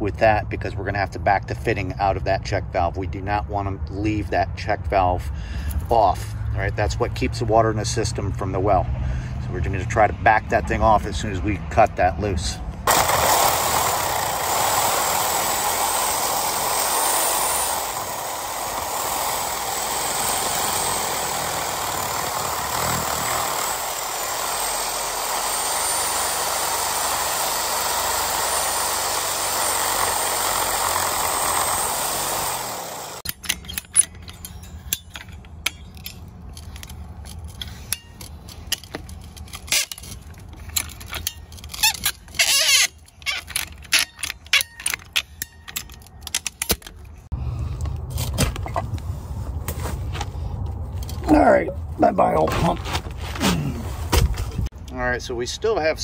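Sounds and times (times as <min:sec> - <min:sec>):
power saw cutting pipe: 0:12.9 - 0:34.0, 0:40.7 - 0:45.8
wrench clicks and knocks: 0:33.2 - 0:47.1.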